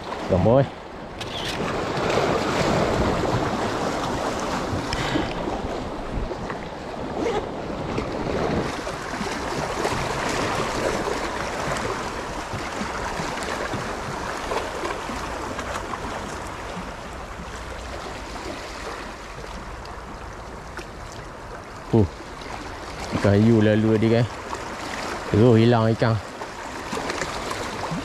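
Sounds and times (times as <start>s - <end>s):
waves washing against rocks: 1.3s - 17.3s.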